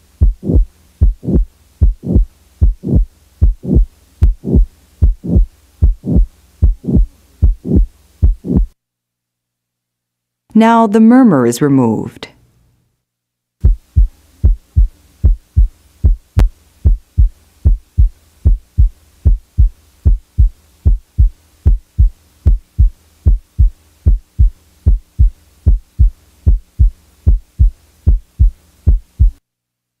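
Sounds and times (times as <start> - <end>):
heartbeat through stethoscope: 0.0 - 8.8, 13.6 - 29.4
faint low hum: 0.0 - 30.0.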